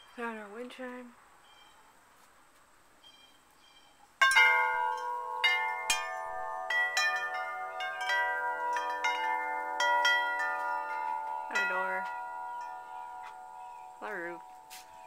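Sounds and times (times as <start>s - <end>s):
metal wind chime ringing: 4.2s - 15.0s.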